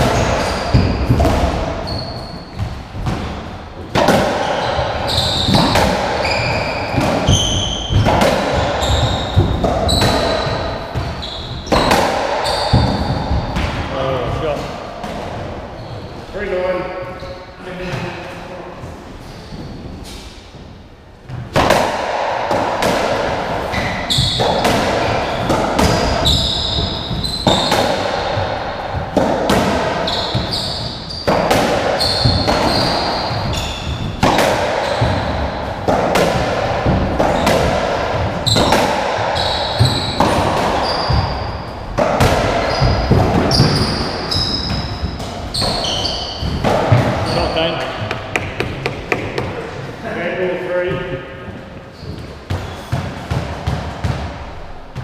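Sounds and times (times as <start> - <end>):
racket striking ball: 0.0 - 2.0, 2.6 - 13.9, 21.3 - 49.7
shoes squeaking on wooden floor: 0.0 - 3.0, 4.4 - 8.0, 8.6 - 13.6, 15.5 - 16.4, 17.1 - 20.8, 23.7 - 28.9, 29.8 - 35.8, 37.0 - 42.0, 42.6 - 49.8, 50.8 - 53.0.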